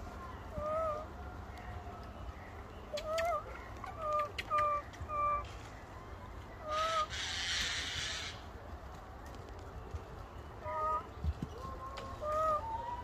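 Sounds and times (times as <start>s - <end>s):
baby monkey coo calls: 2.9s - 5.5s.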